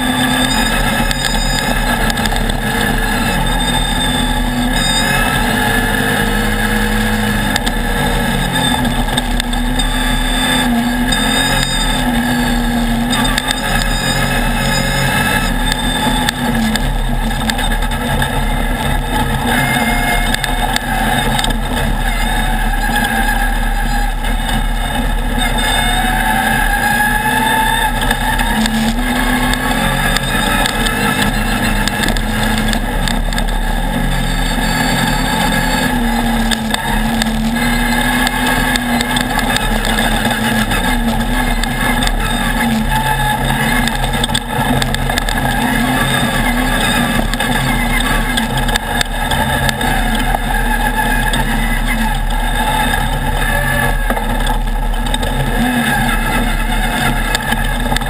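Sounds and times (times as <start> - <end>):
race buggy engine revving: 0.0 - 58.0
track noise: 0.0 - 58.0.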